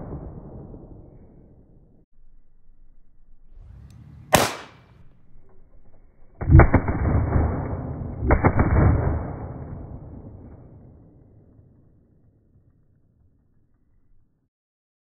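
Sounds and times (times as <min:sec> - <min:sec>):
pistol shots echoing: 0:04.3 - 0:04.8.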